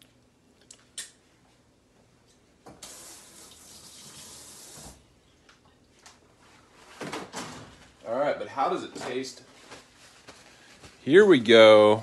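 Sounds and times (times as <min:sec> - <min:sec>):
water running from a tap: 0:02.8 - 0:05.0.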